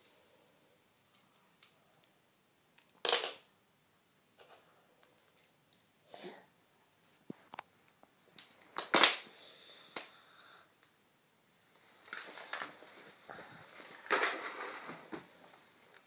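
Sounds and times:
objects clattering on wooden floor: 13.9 - 15.5.

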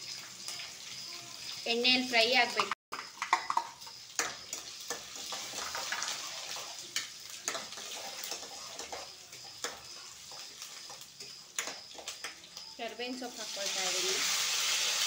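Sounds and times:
food sizzling in hot oil: 0.0 - 15.0
spoon clicking and scraping pan: 2.5 - 12.7.

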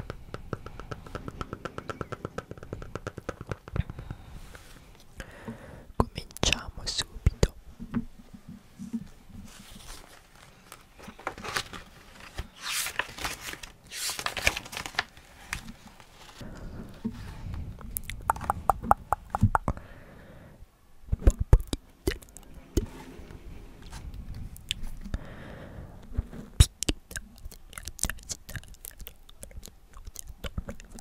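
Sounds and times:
book pages turning: 9.4 - 16.4
paper swishes and rustles: 9.4 - 16.4.

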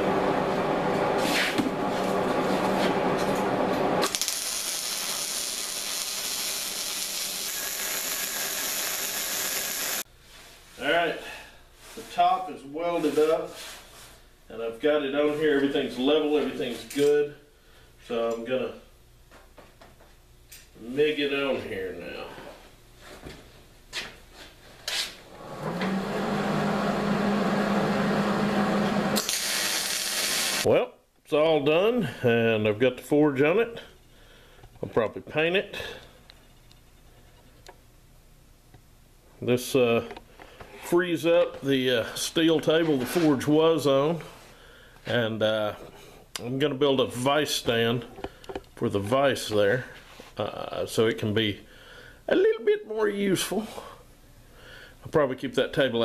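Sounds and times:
welder arc crackling hiss: 4.0 - 10.1, 29.2 - 30.7.

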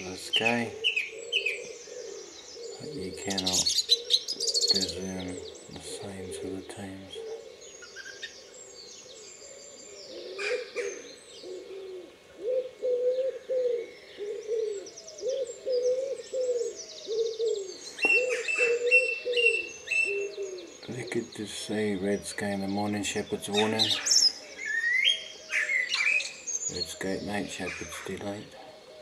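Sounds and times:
low arched coos: 0.0 - 29.0
songbird whistles and trills: 14.8 - 20.9.

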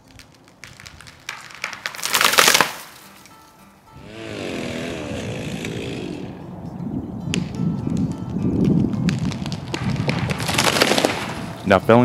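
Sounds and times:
wood cracking and splintering: 0.0 - 3.3, 8.7 - 11.6
tree crashing to the ground: 0.1 - 3.2, 9.0 - 11.6.

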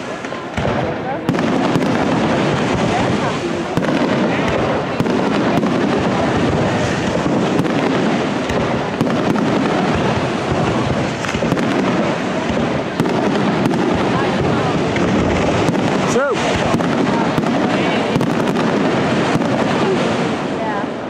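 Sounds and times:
fireworks bangs and crackling: 0.0 - 21.0.

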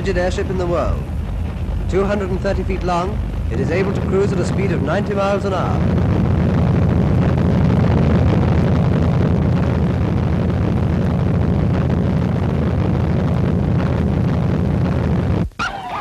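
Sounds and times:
aircraft engines droning: 0.0 - 11.5.

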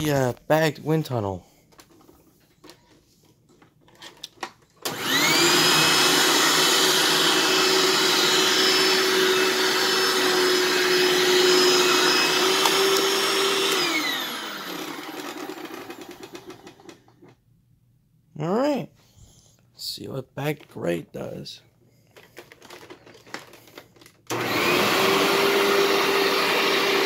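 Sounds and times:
vacuum cleaner motor whining: 4.8 - 17.3, 22.6 - 27.0.

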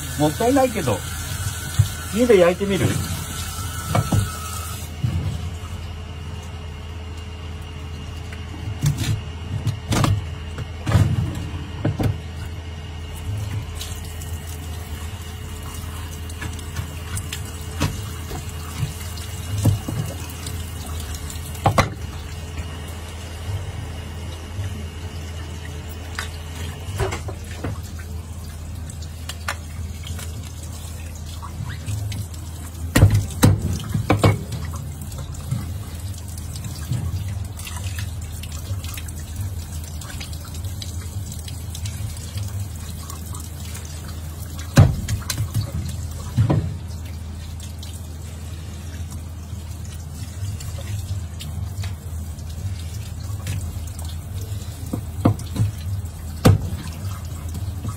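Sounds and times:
fish being rinsed by hand: 0.0 - 57.9
tap water splashing: 1.6 - 2.0, 3.9 - 4.4, 15.6 - 22.7, 26.1 - 28.1, 29.0 - 48.0, 49.0 - 57.9
knocks on board and sink: 32.9 - 34.5, 56.4 - 56.8.

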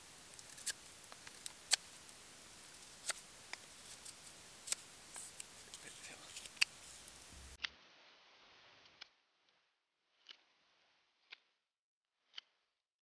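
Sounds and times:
faint steady hiss: 0.0 - 9.2.

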